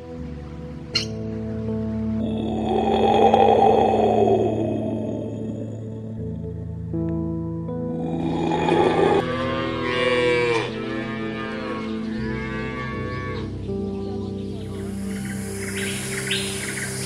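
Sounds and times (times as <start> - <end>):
soft background music: 0.0 - 17.0
cow mooing: 8.0 - 13.5.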